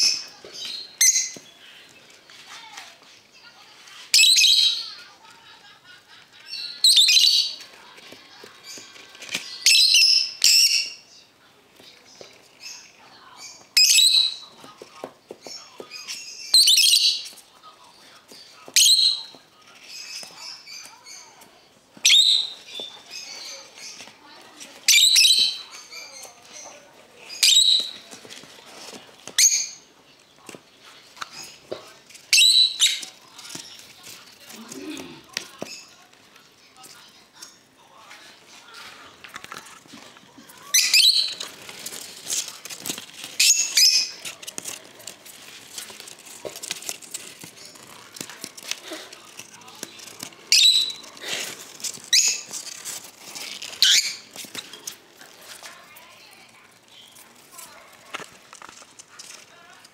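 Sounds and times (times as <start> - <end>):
parrot chicks harsh calls: 40.7 - 41.5, 43.2 - 44.2, 50.5 - 51.2, 52.0 - 52.5, 53.7 - 54.3.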